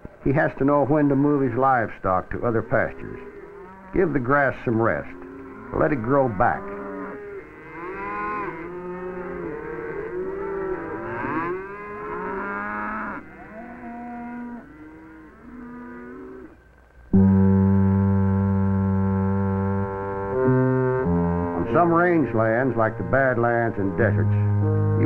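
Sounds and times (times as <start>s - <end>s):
cattle mooing and bawling: 0.8s - 1.6s, 2.3s - 16.6s, 18.5s - 25.0s
held brass-like chord: 17.1s - 25.0s.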